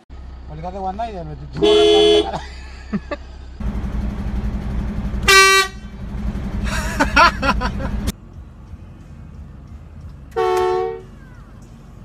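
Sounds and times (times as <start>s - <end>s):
low vehicle rumble: 0.0s - 12.0s
air horn blasts: 1.6s - 2.3s, 5.2s - 6.0s, 10.4s - 11.1s.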